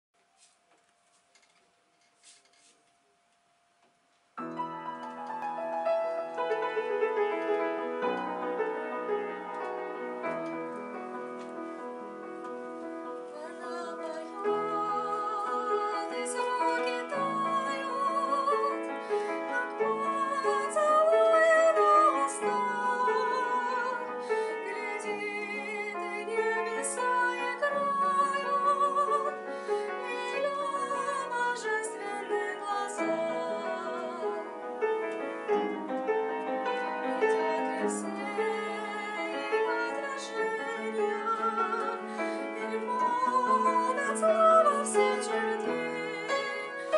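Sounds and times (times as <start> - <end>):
grand piano accompaniment: 4.4 - 46.9
soprano singing with vibrato: 13.2 - 46.9.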